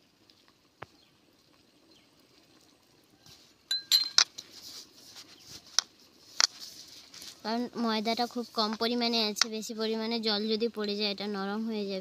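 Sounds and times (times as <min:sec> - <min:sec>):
spoon clinking against glass bowl: 0:03.7 - 0:04.3
hands rubbing flour in a bowl: 0:04.4 - 0:08.8.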